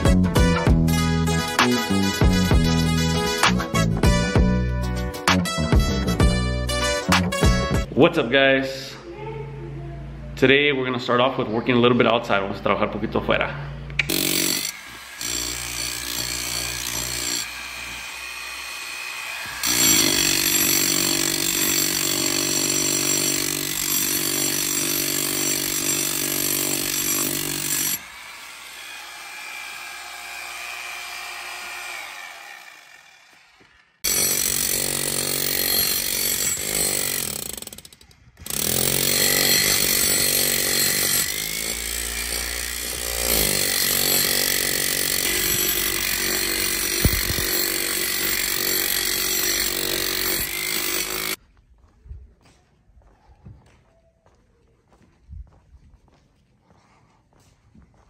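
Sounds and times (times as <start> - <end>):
power tool drilling holes: 14.1 - 51.4.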